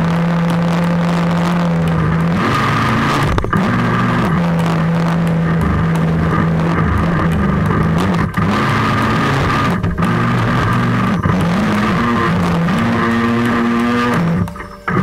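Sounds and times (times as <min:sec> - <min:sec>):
loud music with long held notes: 0:00.0 - 0:15.0.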